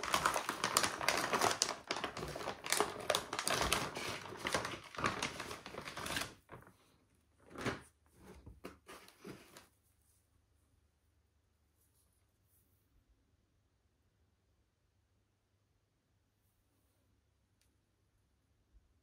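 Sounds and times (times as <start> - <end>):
packaging crinkling and rustling: 0.0 - 6.7, 7.4 - 9.6.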